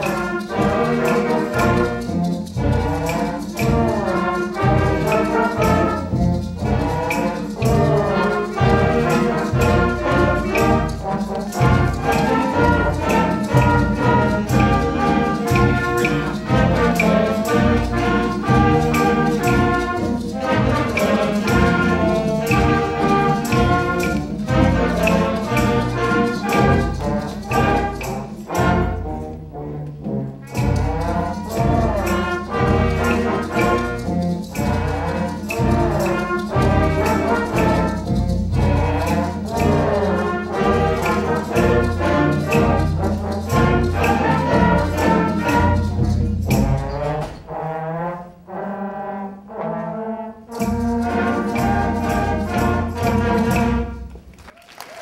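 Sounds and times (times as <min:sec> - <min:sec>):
trombones carrying the tune: 0:00.0 - 0:54.3
school concert band playing: 0:00.0 - 0:55.0.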